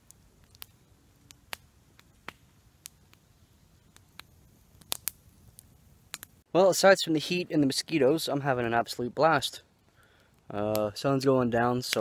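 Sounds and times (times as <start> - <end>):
sharp pops of burning wood: 0.0 - 6.5
campfire crackling: 0.0 - 12.0.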